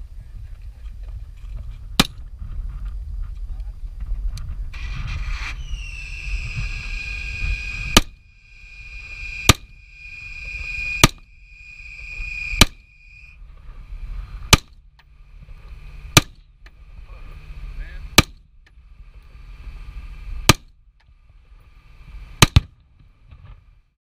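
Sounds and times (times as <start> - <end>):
high ringing tone: 5.6 - 13.4
rifle shots: 9.5 - 9.8, 11.0 - 11.3, 22.4 - 22.8.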